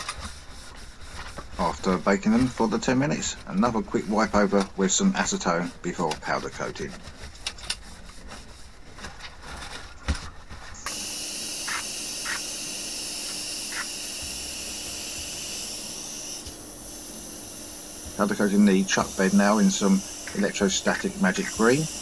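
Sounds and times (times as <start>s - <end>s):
cloth rustling: 0.0s - 10.9s
powder coating gun hissing: 10.9s - 14.0s.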